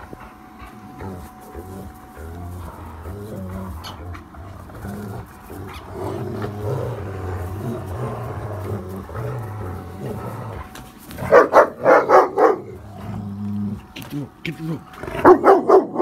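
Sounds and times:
dogs growling in play: 0:00.0 - 0:16.0
dog barking loudly: 0:11.2 - 0:12.8, 0:15.2 - 0:16.0.

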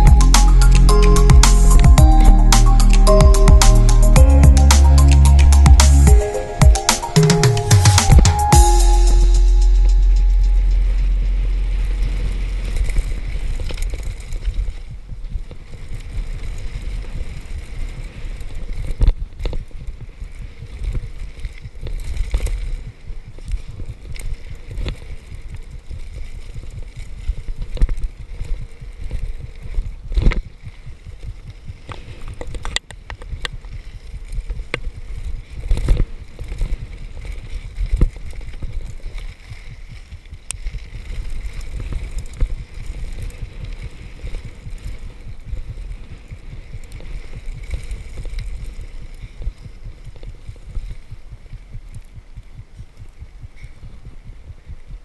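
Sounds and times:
wind rushing over microphone: 0:09.7 - 0:55.0.

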